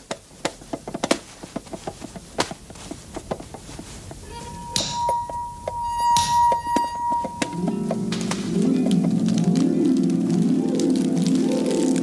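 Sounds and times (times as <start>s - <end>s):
wooden taps of marionettes: 0.0s - 5.8s, 6.5s - 12.0s
steady high tone: 4.3s - 10.2s.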